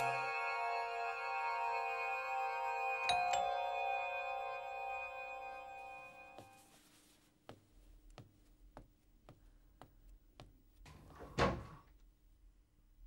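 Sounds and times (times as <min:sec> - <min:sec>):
footsteps on hard floor: 0:05.8 - 0:10.9.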